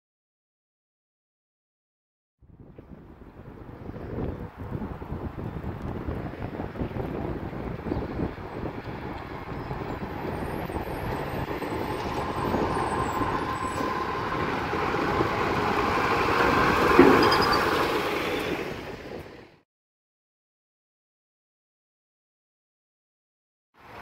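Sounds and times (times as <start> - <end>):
garbage truck engine passing: 8.4 - 19.6.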